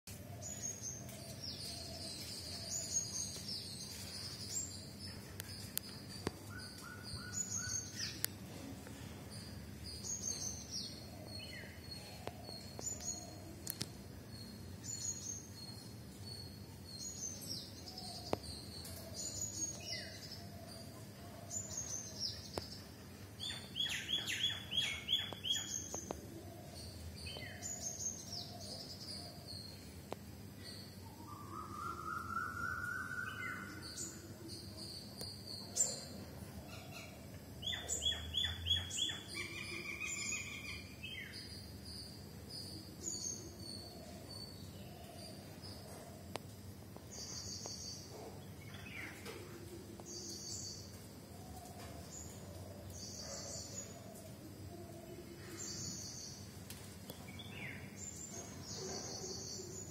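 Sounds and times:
songbirds chirping: 0.1 - 59.9
steady background noise: 0.1 - 59.9
lower bird call: 31.0 - 34.2.

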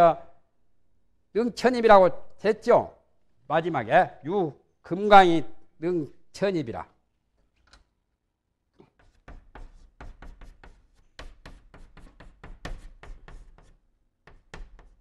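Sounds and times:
chalk tapping and scratching on blackboard: 8.8 - 15.0.

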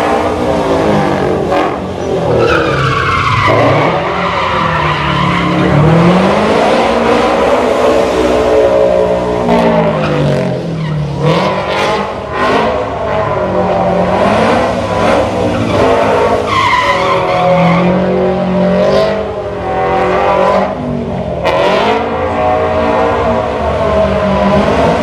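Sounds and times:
car engines revving: 0.0 - 25.0
tyre squeal: 2.0 - 5.8.

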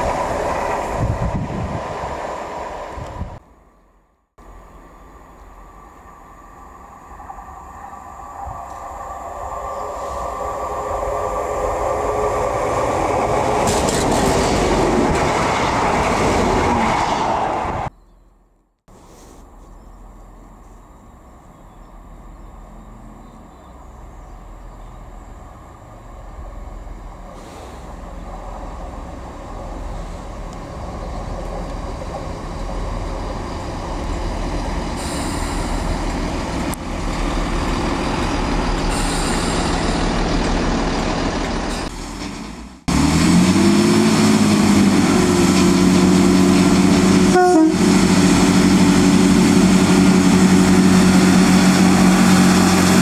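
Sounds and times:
train rumble approaching: 0.0 - 18.0, 19.5 - 53.0
diesel engine running: 32.3 - 53.0.

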